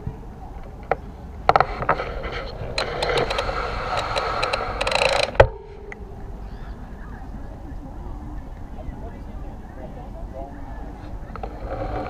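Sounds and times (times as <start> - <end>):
bicycle clattering over rough ground: 0.0 - 5.7.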